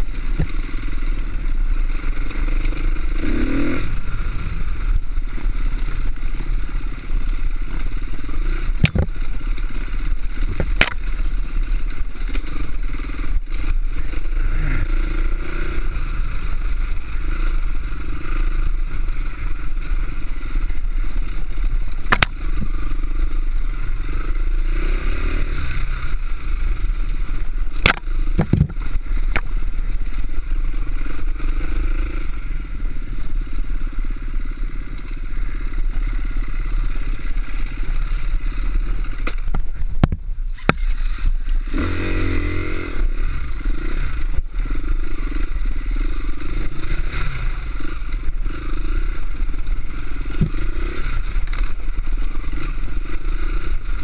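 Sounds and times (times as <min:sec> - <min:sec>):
off-road motorcycle engine: 0:00.0 - 0:54.0
motorcycle clattering over rocks: 0:08.6 - 0:14.3, 0:21.9 - 0:22.7, 0:27.7 - 0:30.2, 0:39.0 - 0:41.4, 0:49.2 - 0:52.8
sharp knocks: 0:08.8 - 0:09.1.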